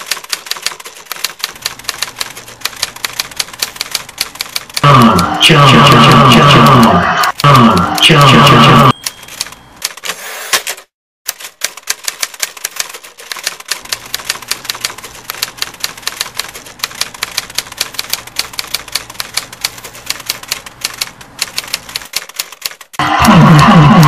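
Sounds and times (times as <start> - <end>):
typewriter keys clacking: 0.0 - 4.8, 9.0 - 23.0.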